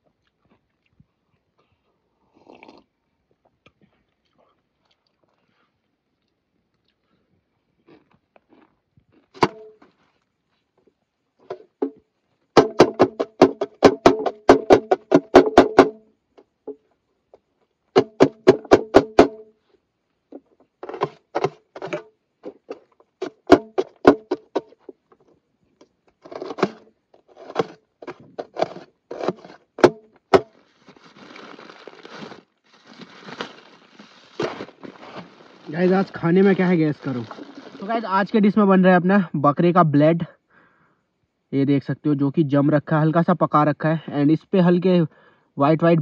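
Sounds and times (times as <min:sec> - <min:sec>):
plastic bag crinkling: 0:30.5 - 0:38.0.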